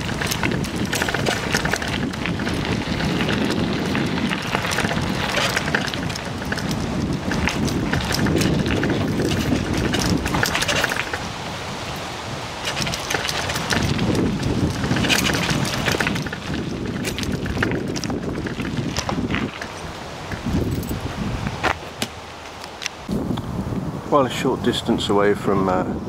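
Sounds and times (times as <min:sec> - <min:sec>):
bicycle tyres crunching over gravel: 0:00.0 - 0:23.4
wind buffeting microphone: 0:00.0 - 0:26.0.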